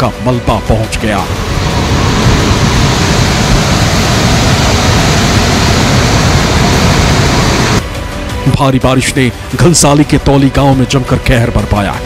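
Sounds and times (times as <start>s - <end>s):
flooded river rushing: 1.3s - 7.8s.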